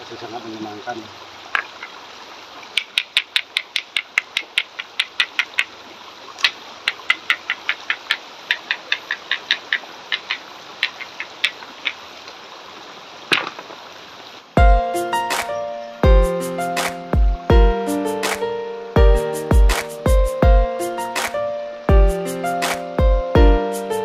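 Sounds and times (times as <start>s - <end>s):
creek water over rocks: 0.0s - 17.6s.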